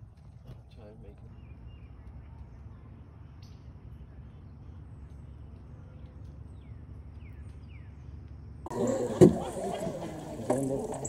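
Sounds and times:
bird chirping: 0:06.4 - 0:11.0.

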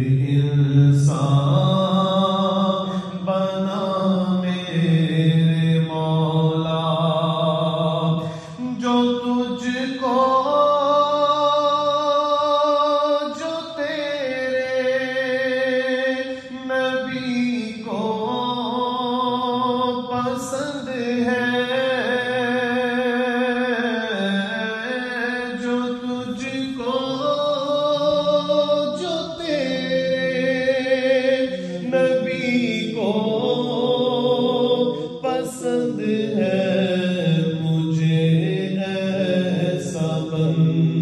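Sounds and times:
man singing devotional chant: 0:00.0 - 0:41.0.

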